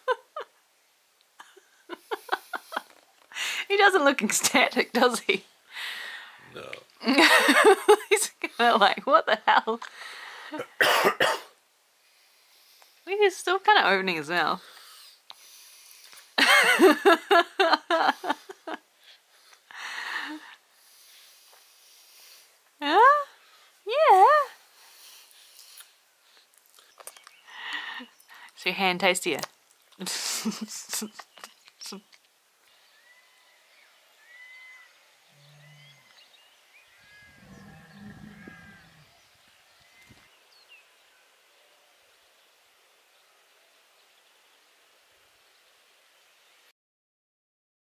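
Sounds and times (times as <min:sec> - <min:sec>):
person laughing: 0:00.0 - 0:00.5, 0:01.4 - 0:02.9, 0:07.0 - 0:08.5, 0:16.4 - 0:18.8
soft breathy sound: 0:09.8 - 0:10.6, 0:18.3 - 0:22.6
low drawn-out animal call: 0:32.8 - 0:40.0.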